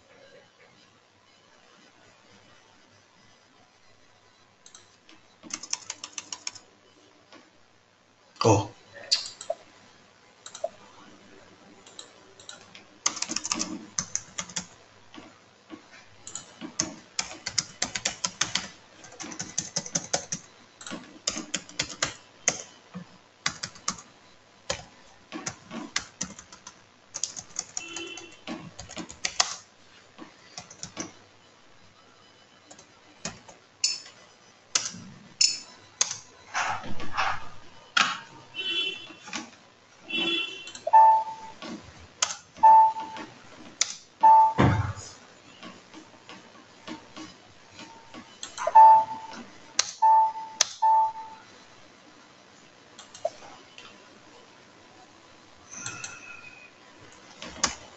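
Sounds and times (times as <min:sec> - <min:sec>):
typing on computer keyboard: 0:04.6 - 0:06.6, 0:11.8 - 0:14.8, 0:16.2 - 0:22.7, 0:23.4 - 0:24.0, 0:24.7 - 0:29.6, 0:30.6 - 0:31.1, 0:34.7 - 0:36.2, 0:57.4 - 0:57.8.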